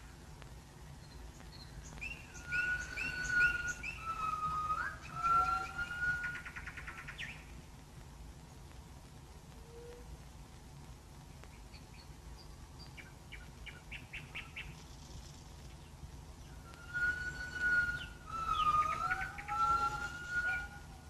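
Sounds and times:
birds chirping: 0:00.0 - 0:07.7, 0:11.3 - 0:21.0
faint steady hum: 0:00.0 - 0:21.0
long whistled bird notes: 0:01.0 - 0:07.6, 0:16.4 - 0:21.0.

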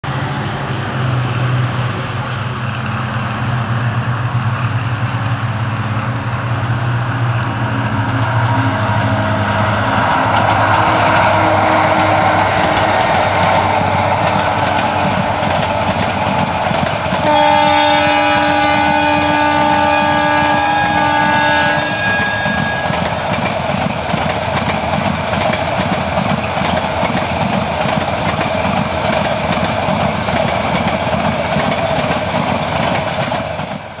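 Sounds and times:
locomotive hum: 0:00.0 - 0:34.0
train wheels rumbling on rail: 0:00.0 - 0:34.0
two-tone train horn: 0:07.0 - 0:15.6, 0:17.2 - 0:23.3.

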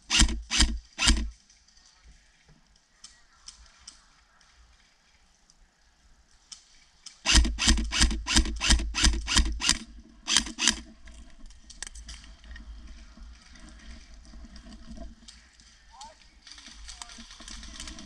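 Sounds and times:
airsoft gun shots: 0:07.3 - 0:10.8.

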